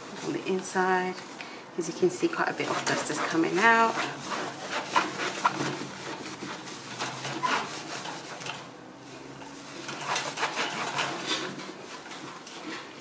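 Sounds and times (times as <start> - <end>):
cloth wiping wire mesh: 2.3 - 12.2.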